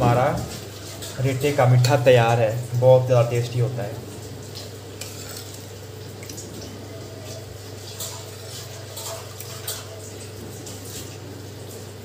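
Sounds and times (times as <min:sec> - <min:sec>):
ladle scraping a steel pan: 0:00.0 - 0:02.1, 0:05.0 - 0:05.7, 0:07.2 - 0:11.1
syrup bubbling in a pan: 0:00.0 - 0:12.0.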